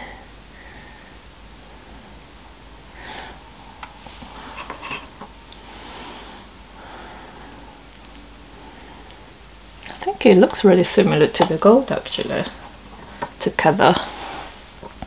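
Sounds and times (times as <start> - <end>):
soft breathing: 0.0 - 2.3, 2.9 - 10.0, 12.6 - 13.4, 14.0 - 14.9.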